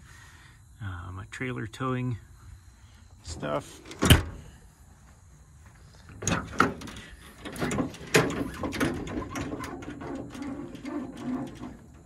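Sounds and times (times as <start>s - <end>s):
latches clicking and rattling: 3.8s - 4.4s, 6.1s - 12.0s
metal door banging shut: 3.9s - 4.4s, 6.2s - 12.0s.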